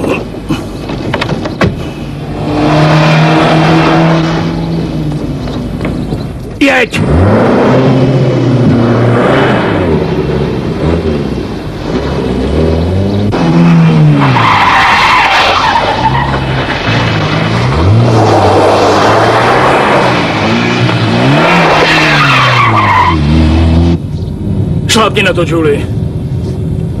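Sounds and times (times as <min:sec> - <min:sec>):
car engines revving: 0:00.0 - 0:27.0
tyres squealing: 0:13.6 - 0:23.3.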